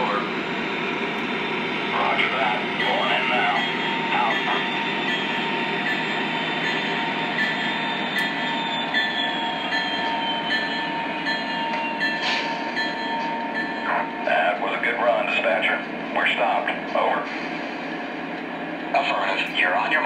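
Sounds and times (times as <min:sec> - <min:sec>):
diesel engine sounds: 0:00.0 - 0:20.0.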